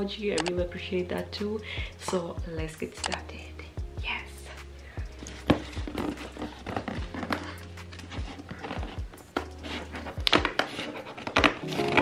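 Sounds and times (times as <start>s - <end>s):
background music: 0.0s - 12.0s
scissors cutting packing tape: 5.2s - 12.0s
scraping on cardboard: 5.3s - 12.0s.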